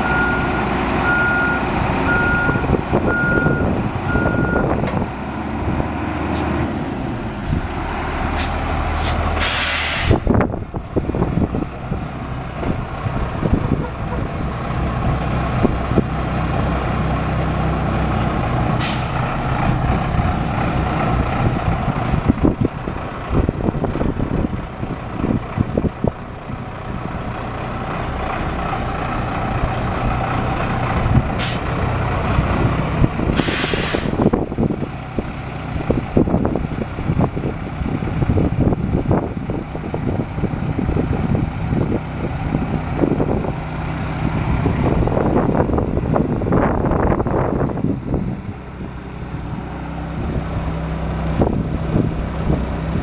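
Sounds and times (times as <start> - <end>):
diesel truck engine running: 0.0 - 53.0
air brake hiss: 8.4 - 10.3, 18.8 - 19.2, 31.4 - 31.6, 33.4 - 34.3.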